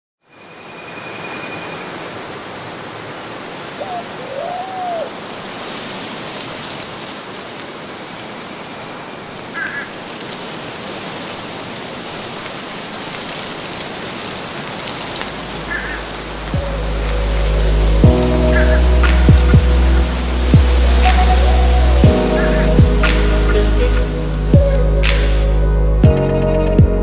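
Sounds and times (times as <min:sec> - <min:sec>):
rushing flowing water: 0:00.3 - 0:26.2
low hum: 0:15.4 - 0:27.0.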